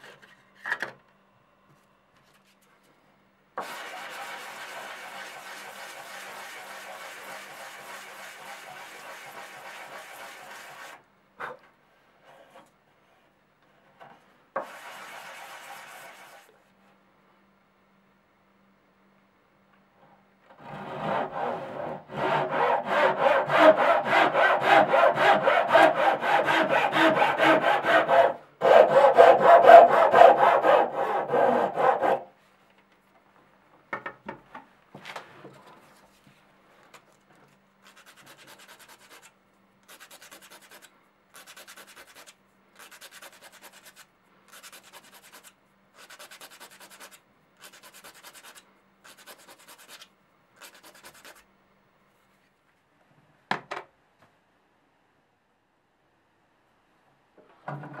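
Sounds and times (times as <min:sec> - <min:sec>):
hand saw cutting wood: 0:03.6 - 0:11.0, 0:20.6 - 0:32.3, 0:39.9 - 0:51.4.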